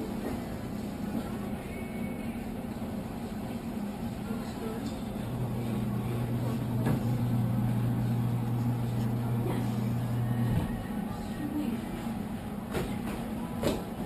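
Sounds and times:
faint electrical hum: 0.0 - 14.0
claw machine motor humming: 4.6 - 11.1.

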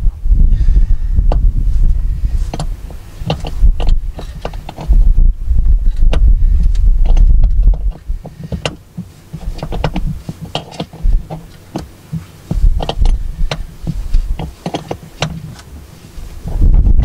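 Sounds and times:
wind buffeting the microphone: 0.0 - 17.0
clicks and knocks of metal parts: 2.5 - 5.0, 5.9 - 15.7.

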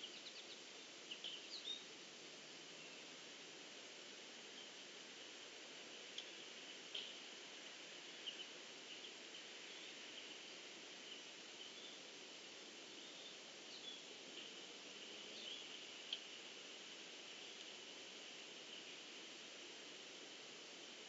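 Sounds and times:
constant hiss: 0.0 - 21.0.

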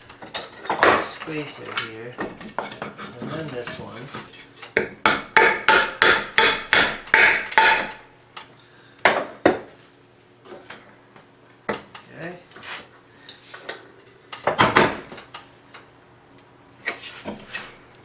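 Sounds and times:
sharp knocks on wooden pulley: 5.0 - 7.9.

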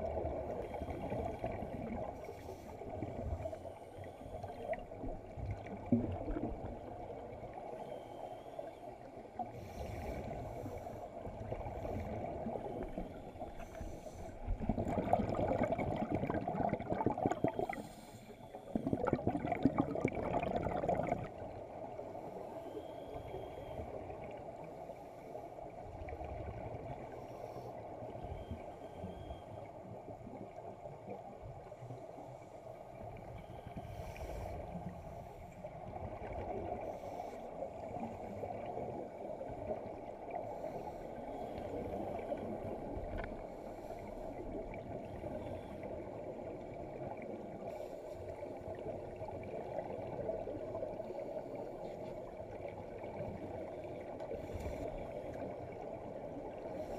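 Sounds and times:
underwater regulator bubbles: 11.4 - 21.4.

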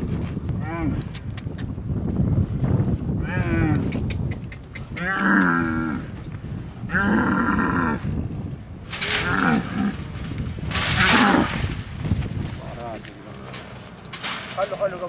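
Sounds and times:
camel calling: 3.2 - 8.2, 8.9 - 11.9.

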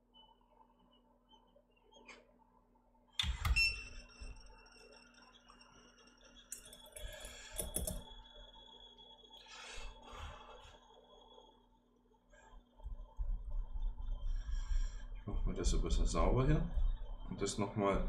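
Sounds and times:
tools knocking and clicking: 6.6 - 8.0.

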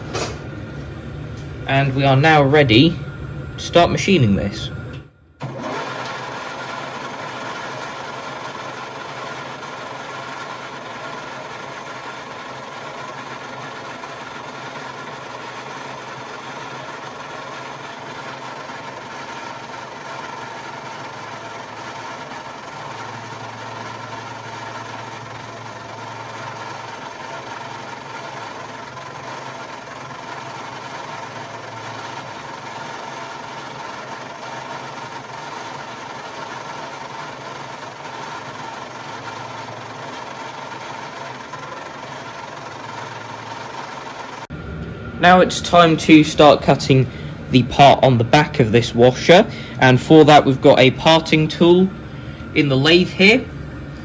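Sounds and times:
low hum: 0.0 - 5.5
metal lathe humming and whining: 0.0 - 54.0.

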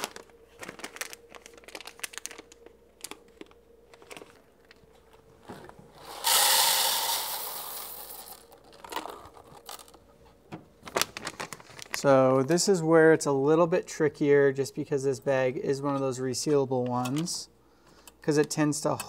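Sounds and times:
coffee bag crinkling and rustling: 0.0 - 5.7, 6.4 - 10.0, 10.8 - 12.5.

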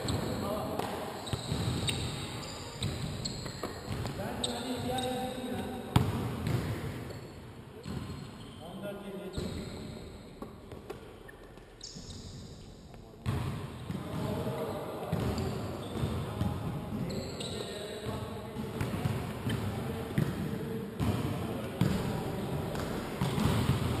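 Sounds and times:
players' voices: 3.3 - 6.2, 12.8 - 24.0
basketball bouncing on floor: 5.9 - 6.8, 22.7 - 24.0.

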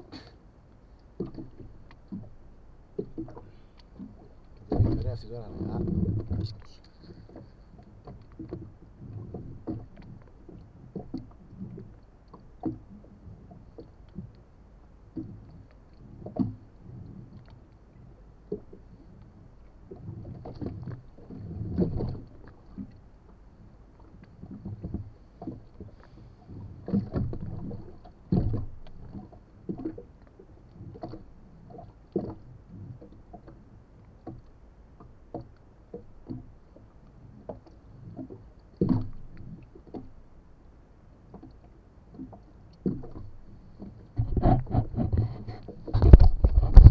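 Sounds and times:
waves lapping against boat hull: 0.0 - 46.9
sharp low knocks: 4.7 - 6.5.

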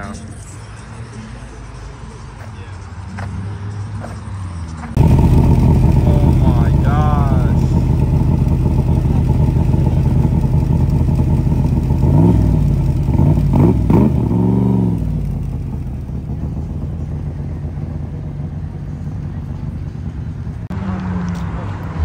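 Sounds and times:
car engine idling and revving: 0.0 - 22.0
car pulling away: 4.4 - 22.0.

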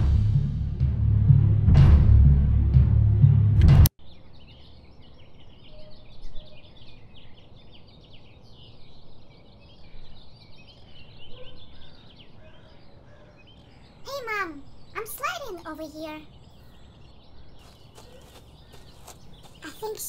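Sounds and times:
small birds chirping: 4.0 - 20.0.

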